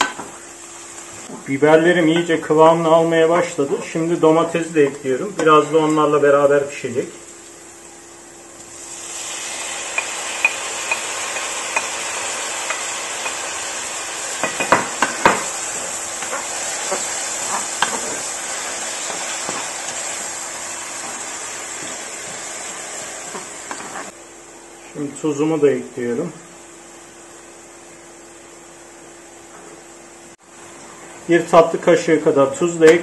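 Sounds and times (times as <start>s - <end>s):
vegetables sizzling in a pan: 0.0s - 1.4s, 7.0s - 24.2s
wooden spoon scraping a pan: 15.7s - 20.2s, 20.9s - 24.2s.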